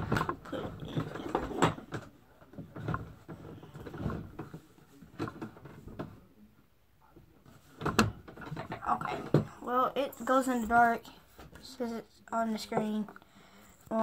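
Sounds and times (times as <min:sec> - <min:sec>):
handling bumps and rustles: 0:00.0 - 0:06.3.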